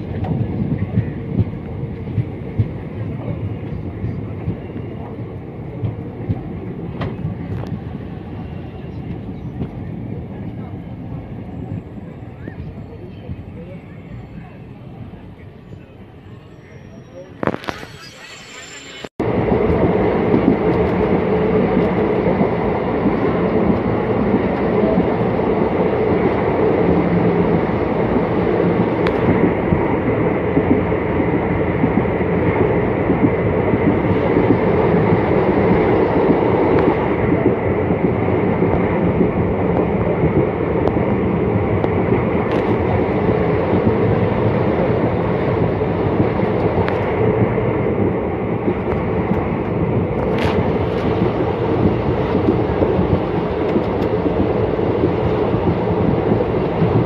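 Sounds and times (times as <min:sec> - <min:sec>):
train wheels on rails: 0:00.0 - 0:57.0.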